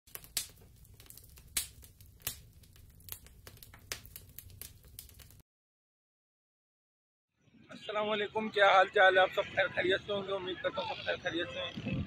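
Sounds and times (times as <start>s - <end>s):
sharp pops and crackles: 0.1s - 5.4s.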